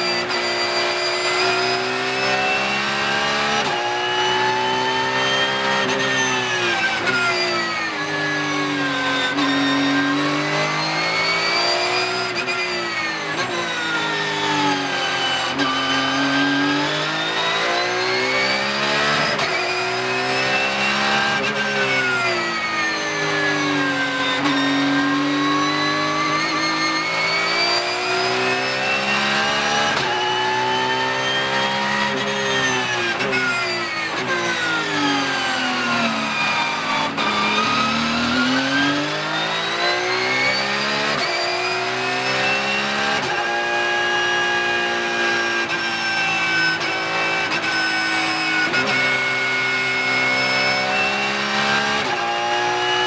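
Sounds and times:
racing car engine: 0.0 - 53.0.

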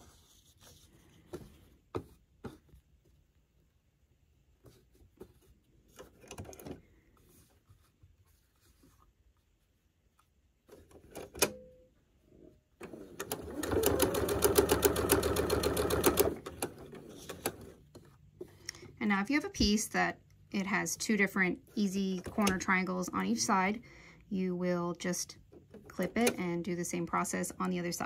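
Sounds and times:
fabric rustling: 6.9 - 10.4
sewing machine stitching: 12.8 - 17.7.

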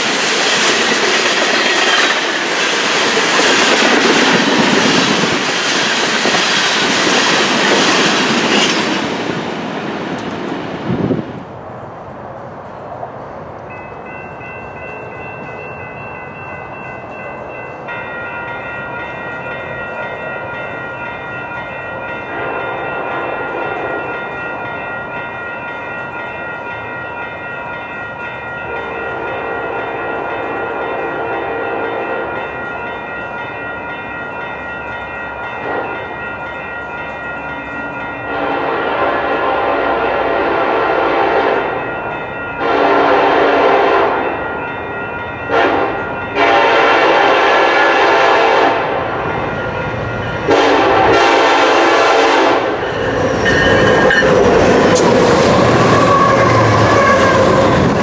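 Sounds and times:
railroad crossing bells ringing: 0.0 - 11.2, 12.6 - 58.0
distant locomotive horn blasts: 22.2 - 24.3, 28.6 - 32.5, 35.6 - 36.1, 38.2 - 41.8, 42.6 - 44.4, 45.5 - 49.2, 50.4 - 52.8, 55.8 - 57.9.

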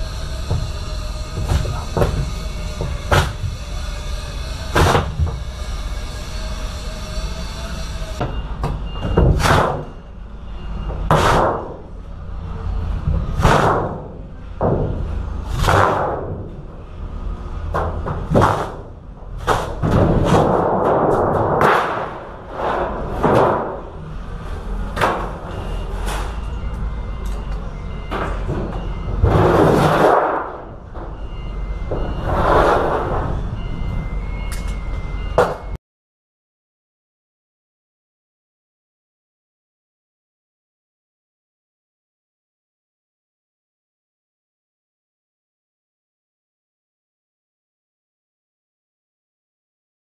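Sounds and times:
steady hum: 0.0 - 8.8
metal panel bangs and thumps: 0.3 - 3.6, 13.1 - 16.6, 17.7 - 24.0.

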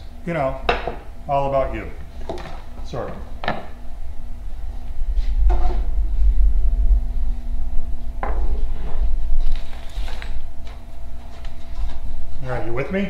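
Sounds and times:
low rumble: 3.8 - 12.7.

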